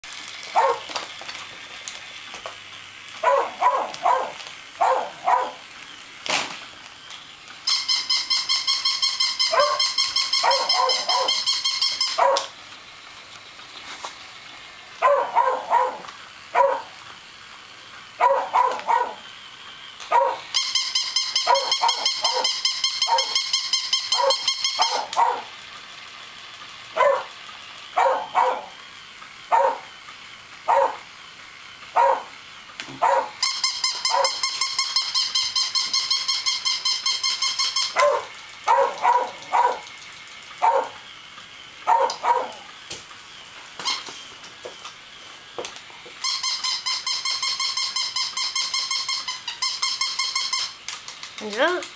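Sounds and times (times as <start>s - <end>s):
toy dog electronic yapping: 0.4s - 1.1s, 3.1s - 5.7s, 7.6s - 12.6s, 15.0s - 17.0s, 18.1s - 19.4s, 20.0s - 25.7s, 26.9s - 30.0s, 30.6s - 31.1s, 31.9s - 41.1s, 41.8s - 42.9s, 43.8s - 44.2s, 46.2s - 51.8s
dog barking: 0.6s - 0.8s, 3.2s - 5.6s, 9.5s - 9.8s, 10.4s - 11.4s, 12.2s - 12.5s, 15.0s - 16.0s, 16.6s - 16.9s, 18.2s - 19.2s, 20.1s - 20.4s, 21.5s - 22.5s, 23.1s - 23.4s, 24.2s - 25.5s, 27.0s - 27.3s, 28.0s - 28.7s, 29.5s - 29.9s, 30.7s - 31.0s, 32.0s - 32.3s, 33.0s - 33.3s, 34.1s - 34.4s, 38.0s - 39.8s, 40.6s - 41.0s, 41.9s - 42.7s.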